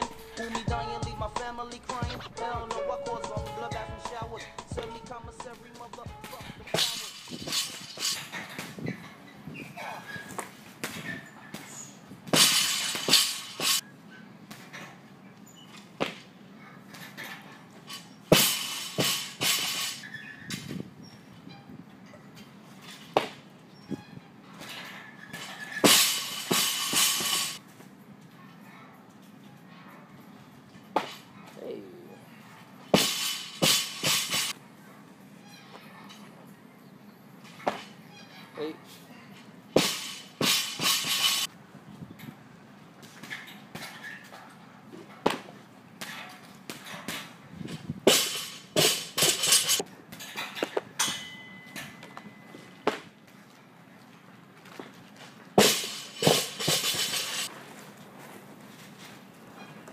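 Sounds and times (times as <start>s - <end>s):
sharp metal clank: 6.3s - 8.6s, 12.3s - 13.8s, 17.9s - 20.1s, 25.4s - 27.6s, 32.9s - 34.6s, 39.8s - 41.5s, 48.1s - 49.8s, 51.0s - 52.0s, 55.6s - 57.5s
barbell crashing onto rubber floor: 12.3s - 13.8s, 18.3s - 20.1s, 25.4s - 27.6s, 32.9s - 34.5s, 39.8s - 41.5s, 55.6s - 57.4s.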